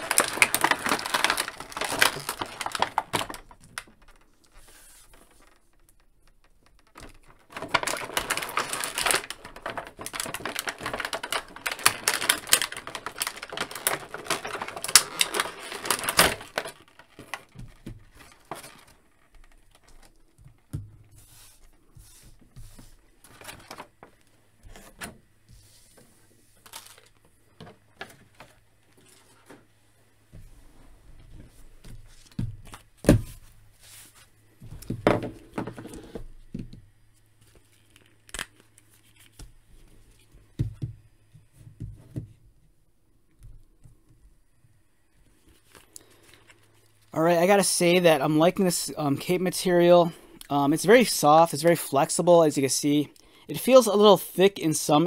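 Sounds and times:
plastic packaging crinkling: 0:00.0 - 0:25.0, 0:26.5 - 0:29.7, 0:35.7 - 0:40.8.

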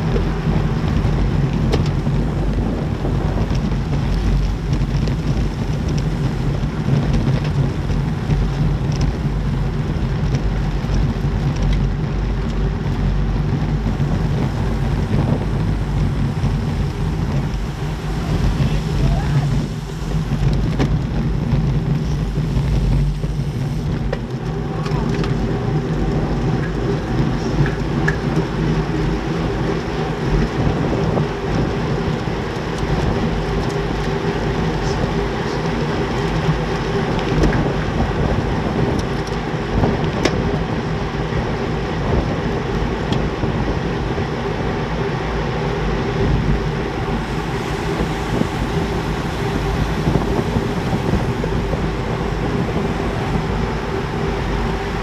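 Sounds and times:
bicycle tyre and road noise: 0:00.0 - 0:55.0
wind rushing over microphone: 0:00.0 - 0:55.0.

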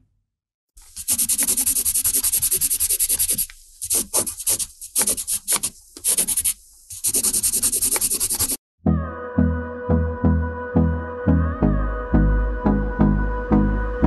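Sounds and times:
pen scribbling scratchily: 0:00.9 - 0:08.6.

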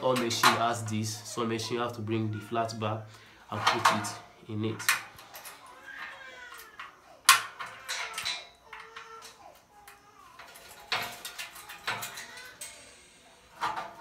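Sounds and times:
steel parts clanking: 0:03.5 - 0:04.2, 0:04.8 - 0:06.1, 0:06.8 - 0:09.4, 0:10.4 - 0:14.0.

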